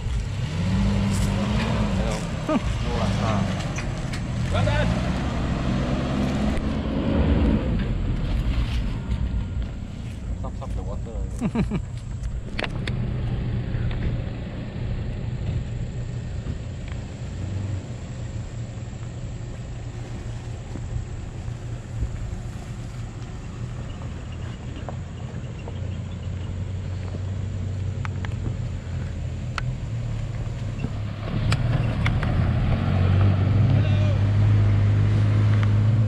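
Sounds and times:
suv engines rumbling: 0.0 - 36.0
light ticks: 28.0 - 30.3.

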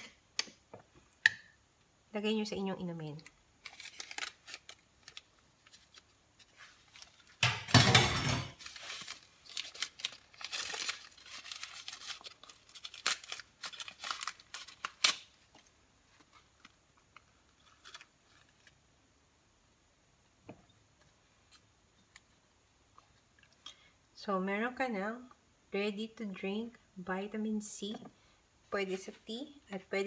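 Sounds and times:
paper sachet ripping: 3.6 - 7.3, 8.6 - 15.4
wrapper crinkling and rustling: 3.6 - 7.5, 8.5 - 18.8.

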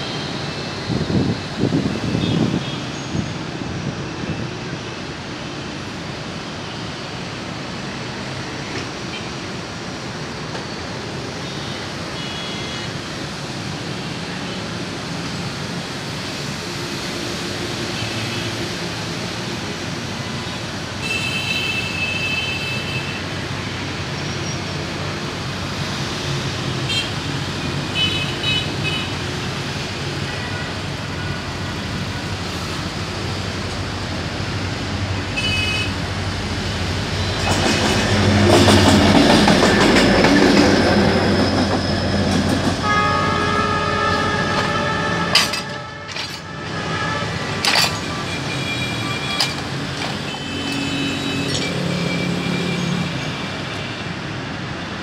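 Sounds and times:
road traffic noise: 0.0 - 55.0
locomotive horn blasts: 42.8 - 49.6.

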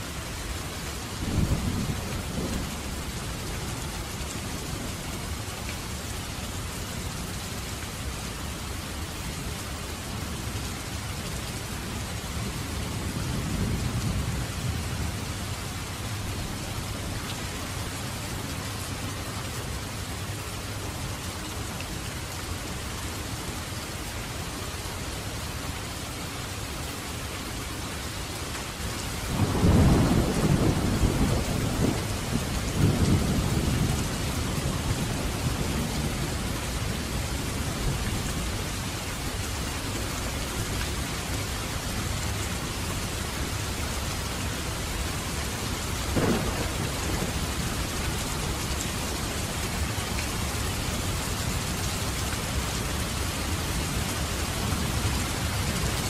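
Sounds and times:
steady rain: 0.0 - 56.0
thunder rumbling: 1.3 - 3.2, 29.3 - 38.5, 46.1 - 49.9.

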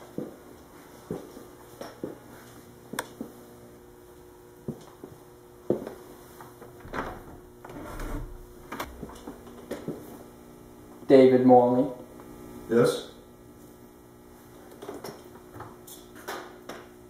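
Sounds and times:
faint steady hum: 0.0 - 16.1
door latch clicking: 6.8 - 9.1
doorknob rattling: 6.8 - 9.2.

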